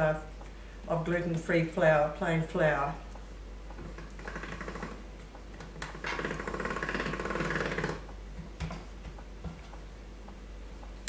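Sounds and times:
pasta machine rattling: 0:05.8 - 0:08.0.

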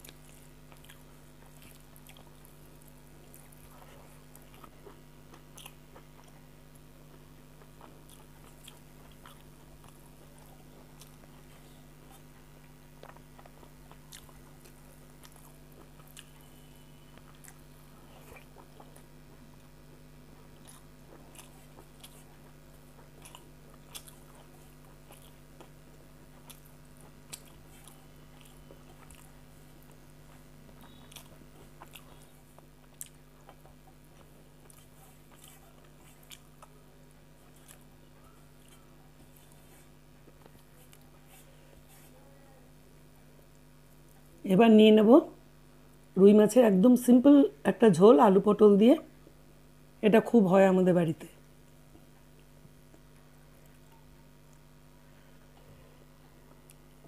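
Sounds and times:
person chewing and crunching: 0:00.0 - 0:42.1
steady low hum: 0:00.0 - 0:57.0.

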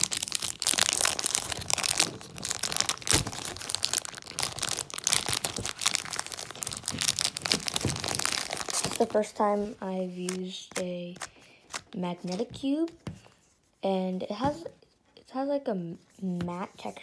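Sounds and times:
plastic wrapper crinkling: 0:00.0 - 0:12.5.

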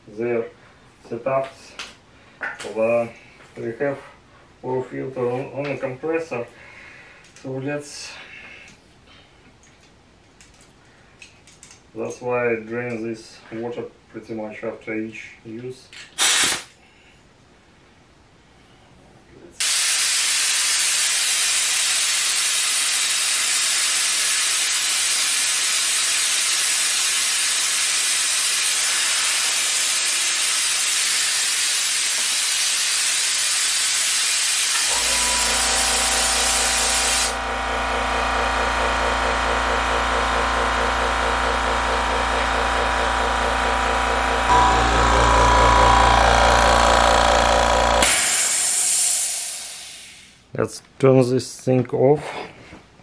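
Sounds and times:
compressed air hissing from air gun: 0:16.2 - 0:16.8, 0:19.6 - 0:37.4, 0:48.0 - 0:50.4
air compressor motor humming: 0:34.3 - 0:50.2.

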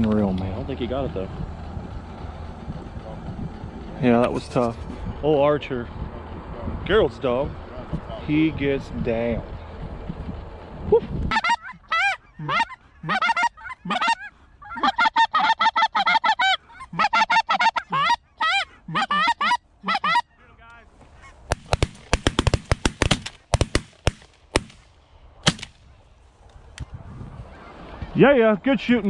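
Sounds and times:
geese honking: 0:11.3 - 0:22.0
shotgun shots: 0:21.5 - 0:25.8.

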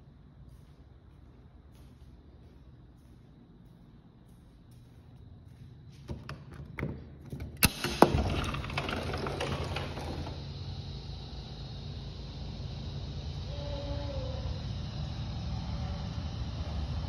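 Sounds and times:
sliding door clacking: 0:07.6 - 0:10.4.

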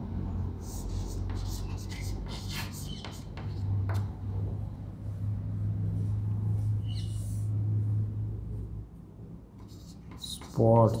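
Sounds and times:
chalk tapping on blackboard: 0:00.7 - 0:04.1, 0:09.6 - 0:10.9.

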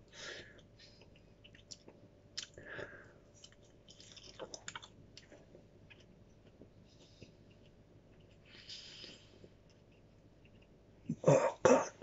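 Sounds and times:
chewing with wet mouth clicks: 0:01.0 - 0:02.6, 0:03.4 - 0:10.8.

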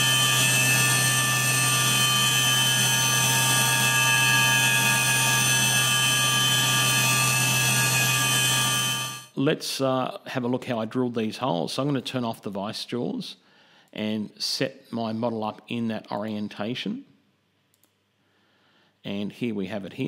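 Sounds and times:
milling machine spindle whine: 0:00.0 - 0:09.3.

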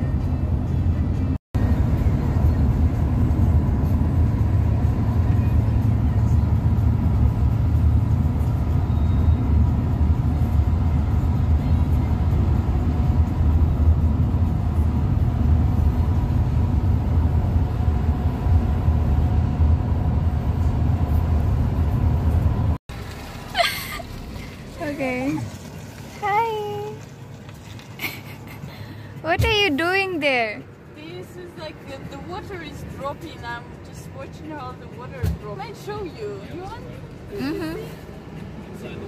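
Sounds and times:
tyre and engine rumble in van: 0:00.0 - 0:30.0.

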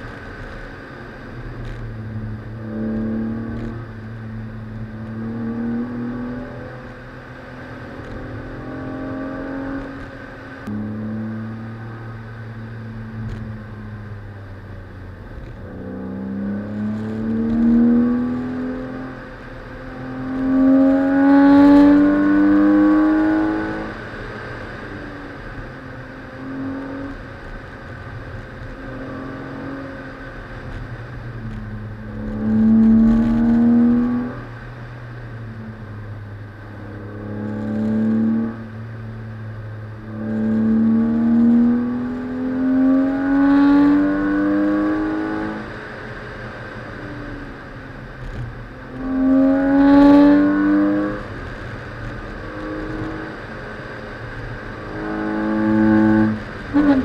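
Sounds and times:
steady low rumble: 0:00.0 - 0:08.9, 0:23.8 - 0:43.0
car engine accelerating hard: 0:00.0 - 0:57.0.

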